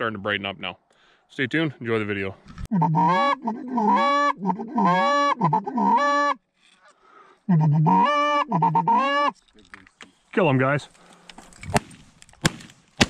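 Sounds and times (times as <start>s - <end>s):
goose call honks: 2.7s - 6.4s, 7.5s - 9.3s.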